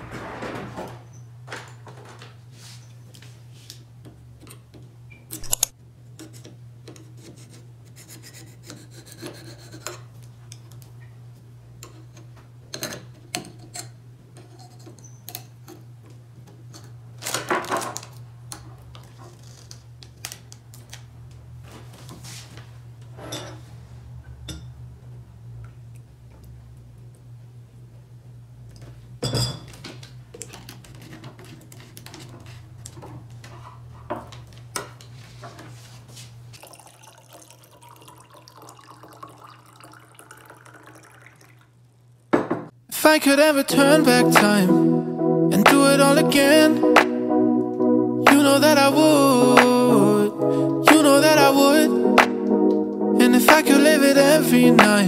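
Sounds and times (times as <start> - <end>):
low hum: 43.7 - 55.0.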